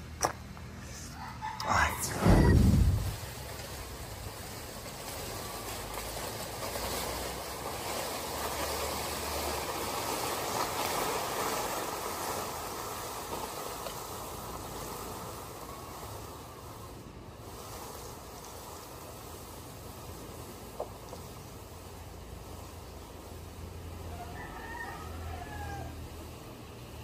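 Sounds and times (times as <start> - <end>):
plant dragged across dry grass: 1.7 - 3.9.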